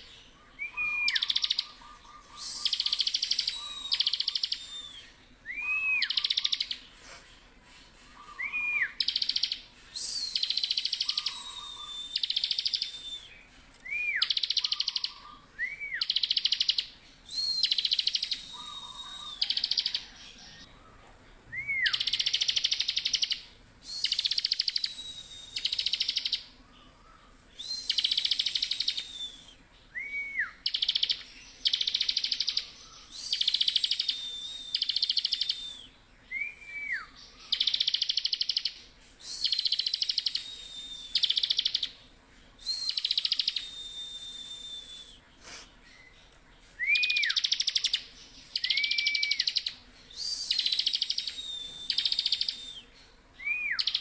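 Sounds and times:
bird singing buzzy trills: 0.0s - 6.9s, 8.0s - 20.7s
bird chirps: 0.0s - 54.0s
bird high whistles: 0.6s - 6.8s, 8.1s - 20.7s, 21.6s - 26.5s, 27.6s - 41.9s, 42.6s - 46.1s, 46.8s - 54.0s.

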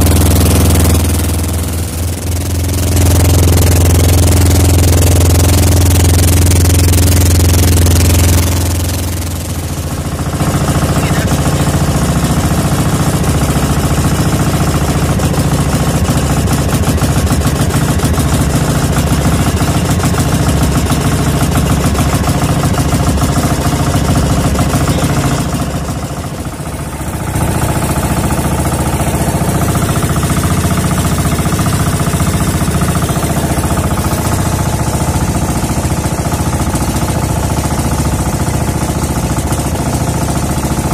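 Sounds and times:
boat engine running: 0.0s - 40.9s.

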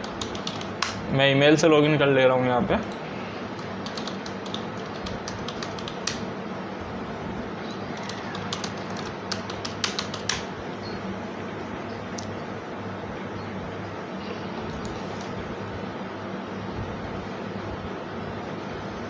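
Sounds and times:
keyboard keystrokes clicking: 0.0s - 1.0s, 3.6s - 6.2s, 7.7s - 10.5s
steady low hum: 0.0s - 19.0s.

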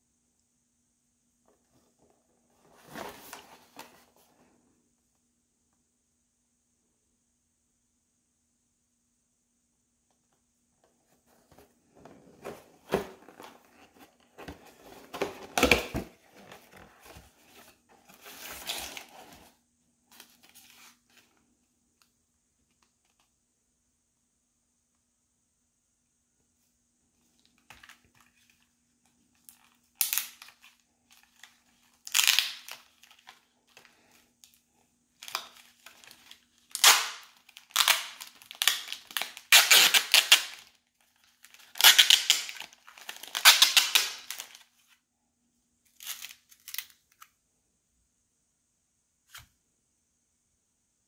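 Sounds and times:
plastic wrapper crinkling and tearing: 29.5s - 33.4s, 35.2s - 44.6s, 45.9s - 47.2s.

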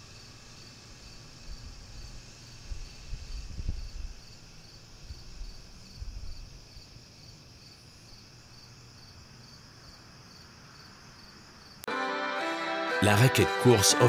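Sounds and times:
thin high hiss: 0.0s - 8.1s
insects chirping: 0.0s - 11.9s.

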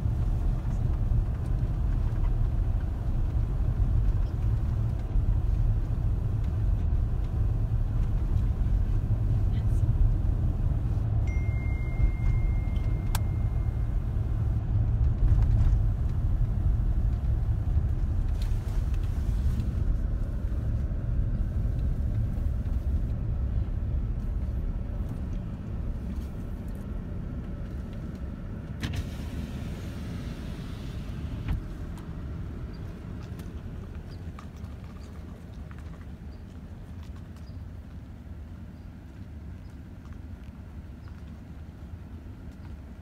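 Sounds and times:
car road rumble from inside cabin: 0.0s - 43.0s
high beep: 11.2s - 14.0s.

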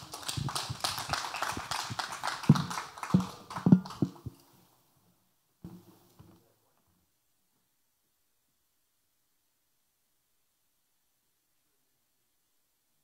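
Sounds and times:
congregation applauding: 0.0s - 4.3s
heavy thumps: 2.5s - 4.4s, 5.7s - 6.0s.

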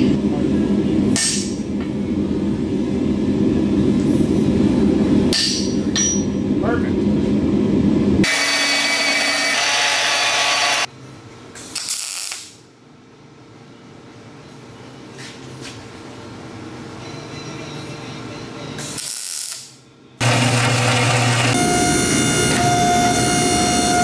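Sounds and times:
welder crackling: 11.8s - 12.6s, 19.0s - 21.6s.

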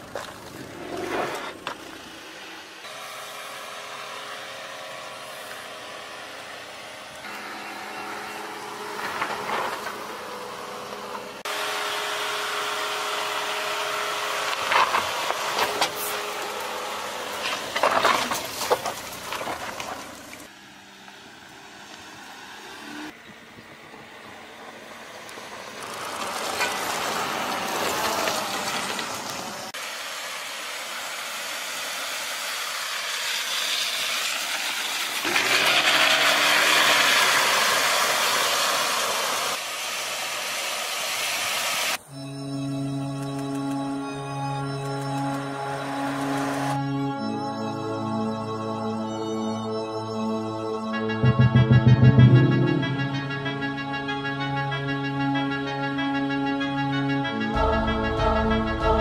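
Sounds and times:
engine running under load: 0.0s - 40.8s, 41.9s - 49.0s, 49.9s - 56.2s
tyres crunching over dirt and rock: 17.4s - 20.4s.

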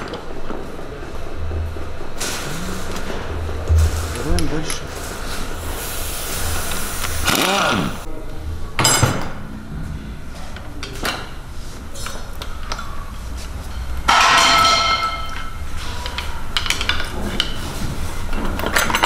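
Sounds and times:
low hum: 0.0s - 7.3s
metallic clang: 3.7s - 5.7s.

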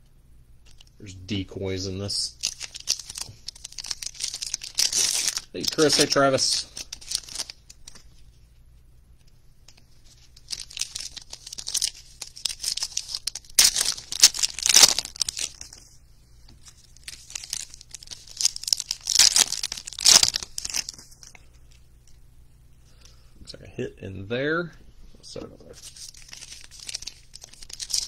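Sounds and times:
foil wrappers tearing and crinkling: 2.4s - 8.1s, 10.1s - 15.8s, 16.6s - 21.4s, 25.8s - 28.0s.

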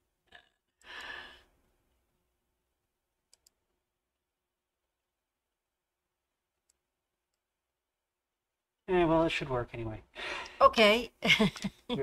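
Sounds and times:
breathy sigh: 0.8s - 1.5s
computer mouse clicks: 3.3s - 3.6s.

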